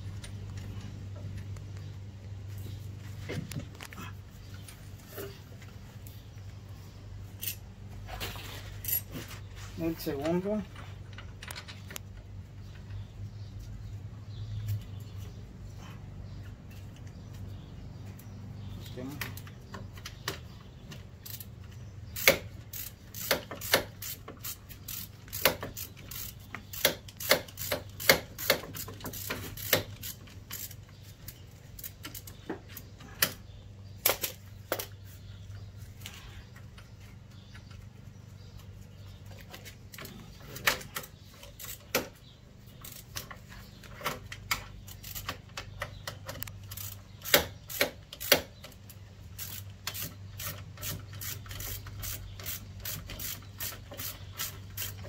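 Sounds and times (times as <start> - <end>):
steady low hum: 0.0 - 55.0
hand ratchet clicking: 22.2 - 30.8, 44.4 - 48.8, 49.4 - 55.0.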